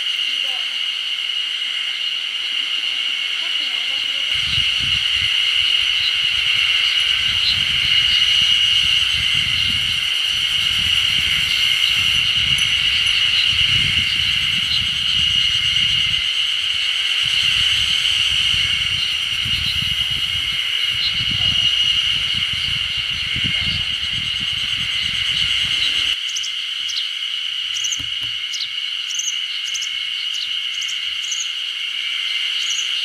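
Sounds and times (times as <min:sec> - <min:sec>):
shrill insect chorus: 0:00.0 - 0:33.0
wind rumbling on microphone: 0:03.9 - 0:26.2.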